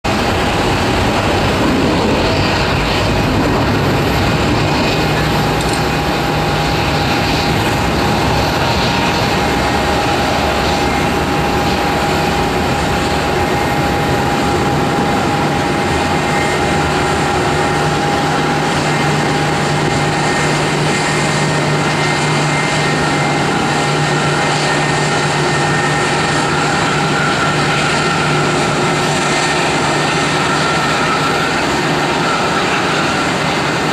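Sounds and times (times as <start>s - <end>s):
jet engines whining: 0.0s - 33.9s.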